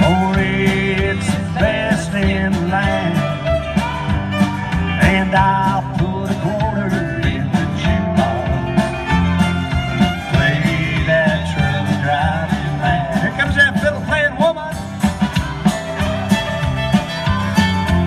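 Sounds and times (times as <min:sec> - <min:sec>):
country band guitars and drums: 0:00.0 - 0:18.0
fiddle lead line: 0:00.0 - 0:18.0.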